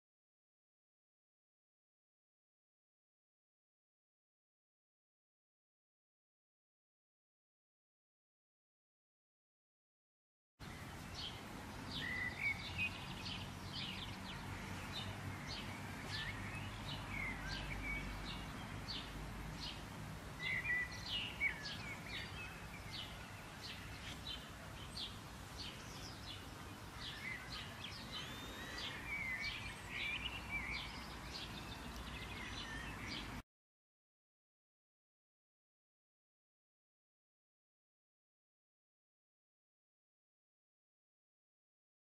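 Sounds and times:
wild birds chirping and calling: 20.4 - 33.4.

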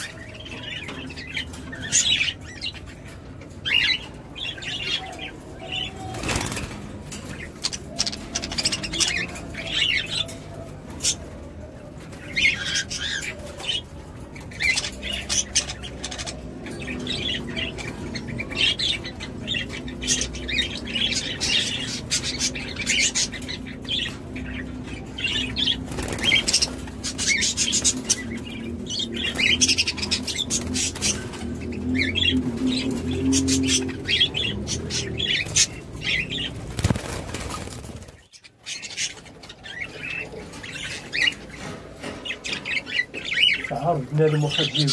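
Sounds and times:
budgerigars chirping: 14.5 - 31.4, 32.0 - 44.9
budgerigars flapping wings: 36.6 - 38.2.

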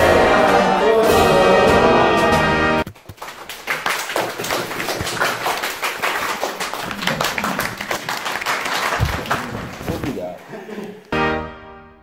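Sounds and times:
orchestral music: 0.0 - 2.9
people clapping: 0.0 - 10.2.

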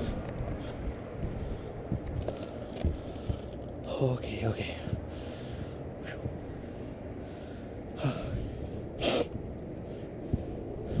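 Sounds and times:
low rumble of handling noise: 0.0 - 11.0
short sharp snorts: 9.0 - 9.3.

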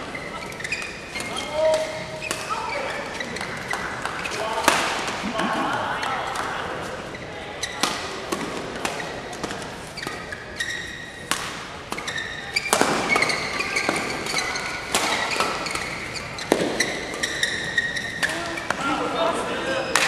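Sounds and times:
shoes squeaking on court floor: 0.0 - 19.0
rackets hitting shuttlecock: 0.6 - 7.0, 11.2 - 18.8.

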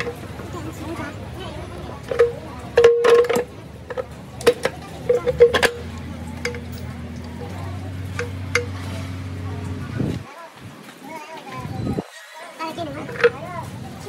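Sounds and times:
low machine hum: 0.0 - 10.2
metal clinking and knocking: 2.0 - 7.0.

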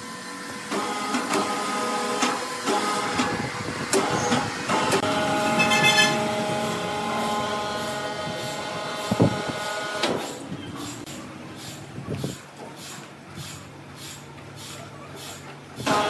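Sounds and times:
sawmill machinery whine: 0.0 - 10.5.

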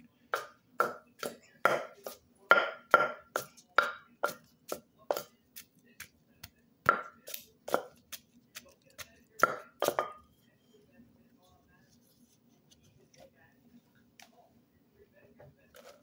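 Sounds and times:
wooden pestle pounding in mortar: 0.4 - 5.3, 6.8 - 8.2, 9.0 - 10.2.

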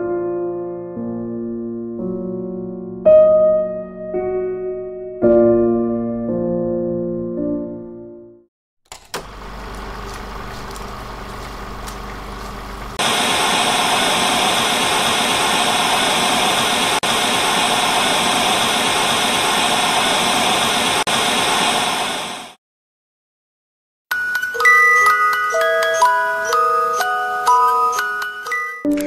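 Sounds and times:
low electrical hum: 9.2 - 13.0.

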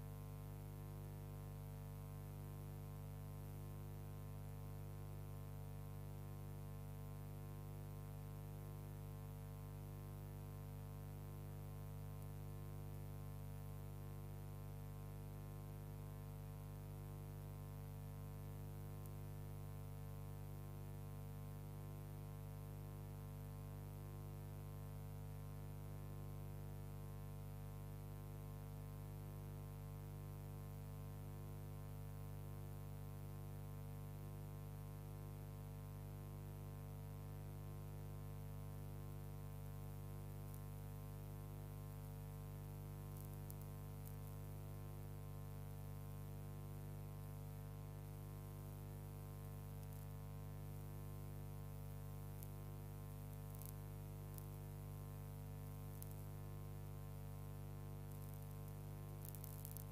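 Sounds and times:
electrical hum with overtones: 0.0 - 59.9.

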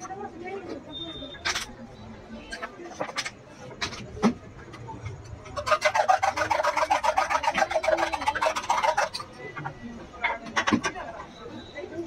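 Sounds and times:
spoon whisking eggs in metal cup: 5.4 - 9.4.

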